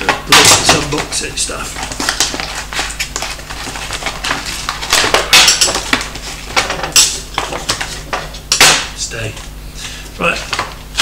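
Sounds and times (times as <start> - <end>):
plastic packaging crinkling: 0.4 - 6.3.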